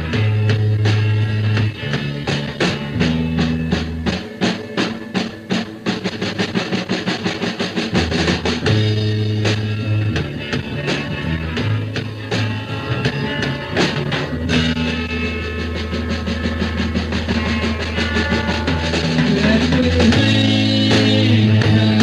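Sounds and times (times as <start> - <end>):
drum kit beat: 0.0 - 22.0
live rock band playing: 0.0 - 22.0.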